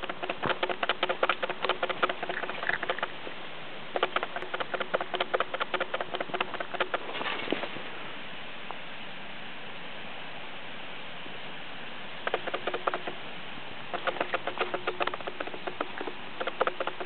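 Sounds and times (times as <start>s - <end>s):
falling snow pattering: 0.0s - 3.4s.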